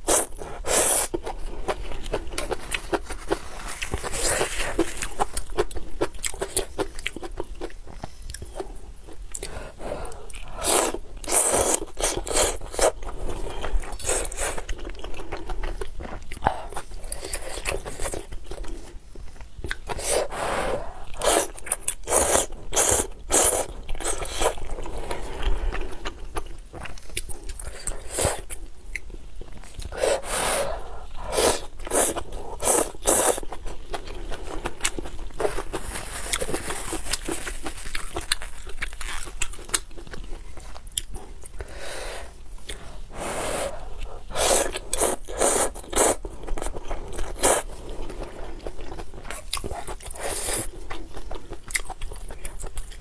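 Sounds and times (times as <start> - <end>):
wet chewing: 43.7 - 53.0.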